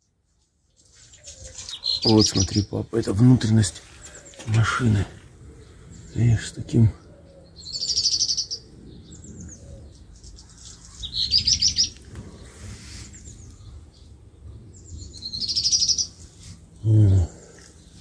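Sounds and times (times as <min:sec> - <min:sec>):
songbird trilling: 0:01.2 - 0:02.8, 0:05.9 - 0:12.5, 0:14.7 - 0:16.2.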